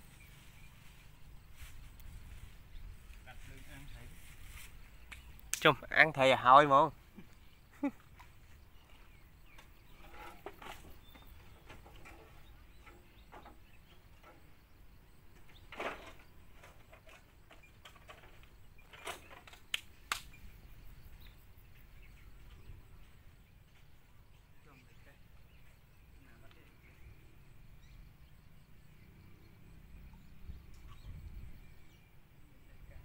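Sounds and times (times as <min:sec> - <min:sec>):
outdoor ambience: 0:00.0 - 0:33.0
sharp clicks: 0:19.1 - 0:20.4.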